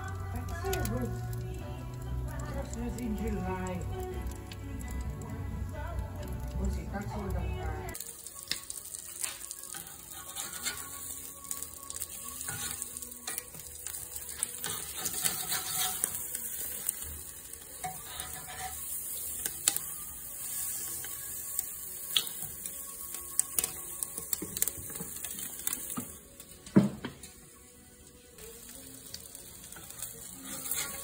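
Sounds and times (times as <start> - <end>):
chicken sizzling on a grill: 0.0 - 31.0
metal tongs clicking on grate: 14.4 - 16.2.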